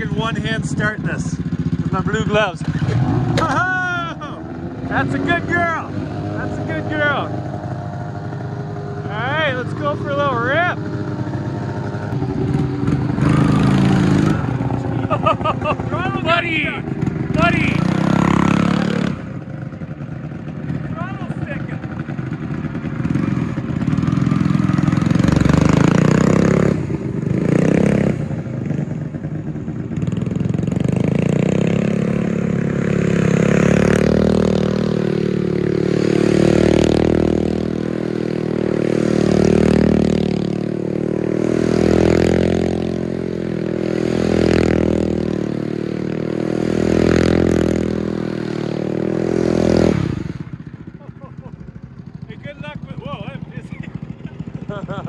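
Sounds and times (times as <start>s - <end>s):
small engine revving hard: 46.4s - 50.5s.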